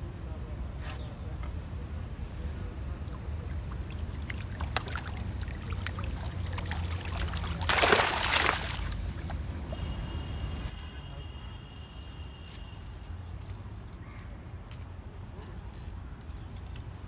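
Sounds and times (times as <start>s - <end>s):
water sloshing and dripping: 2.8s - 10.7s
loud water splash: 3.4s - 9.3s.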